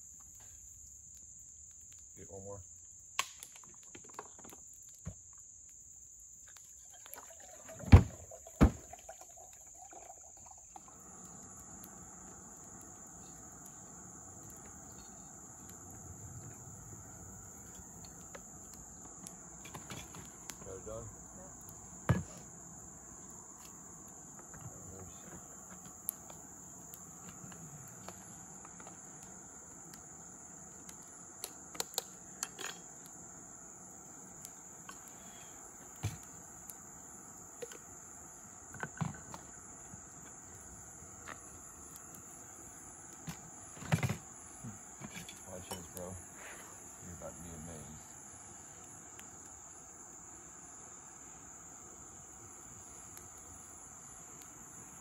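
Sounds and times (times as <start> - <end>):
camp stove burner hissing: 0.0 - 55.0
crickets buzzing: 0.0 - 55.0
insect chorus: 0.0 - 55.0.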